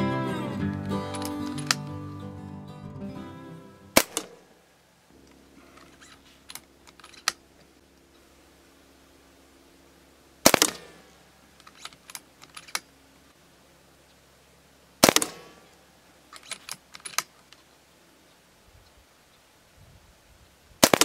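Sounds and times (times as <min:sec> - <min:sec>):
metallic clicks of rifle cocking: 0:01.1 - 0:01.9, 0:04.0 - 0:04.4, 0:05.8 - 0:07.4, 0:11.6 - 0:12.9, 0:16.3 - 0:17.7
air rifle shots: 0:03.9 - 0:04.5, 0:10.4 - 0:11.2, 0:15.0 - 0:15.7, 0:20.8 - 0:21.0.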